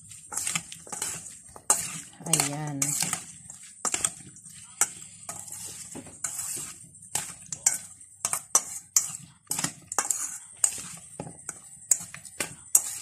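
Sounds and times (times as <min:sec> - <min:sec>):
spoon scraping bowl: 0:00.0 - 0:13.0
spoon clinking in metal bowl: 0:00.3 - 0:03.2, 0:07.2 - 0:13.0.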